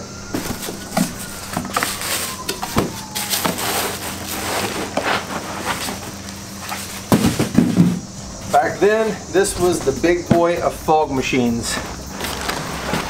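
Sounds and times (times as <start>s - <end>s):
handling knocks and thuds: 0.3s - 3.7s, 4.6s - 8.7s, 9.5s - 10.8s.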